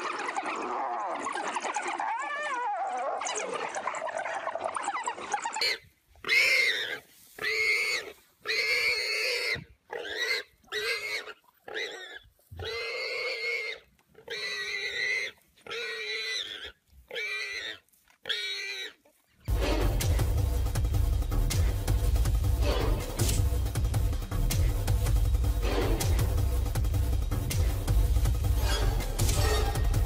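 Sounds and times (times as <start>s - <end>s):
animal squealing: 0.1s - 19.0s.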